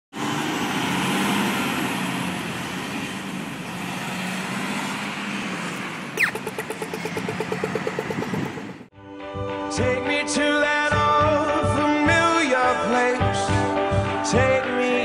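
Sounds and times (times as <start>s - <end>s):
road traffic: 0.1s - 8.9s
vehicle engine running: 0.2s - 8.9s
crossing signal rapid ticking: 5.4s - 8.9s
crossing signal electronic zap: 6.2s - 8.4s.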